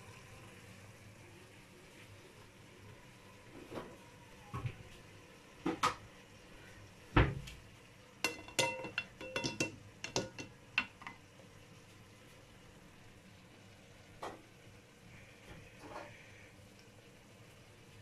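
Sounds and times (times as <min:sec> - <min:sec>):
metal pot and sieve clinking: 0:08.2 - 0:11.2.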